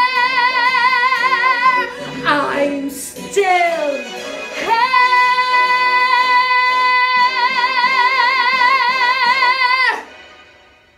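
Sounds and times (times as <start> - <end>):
woman singing high note: 0.0 - 4.0.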